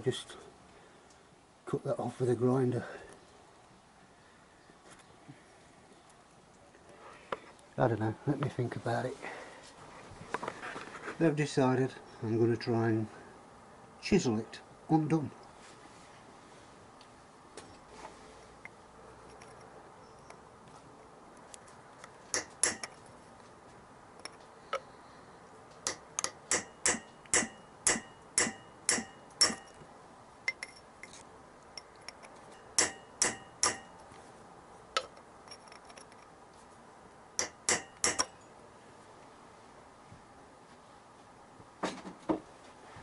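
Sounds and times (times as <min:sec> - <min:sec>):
hammer striking chisel on metal: 0:22.4 - 0:23.0, 0:25.8 - 0:29.8, 0:32.6 - 0:34.0, 0:37.4 - 0:38.4.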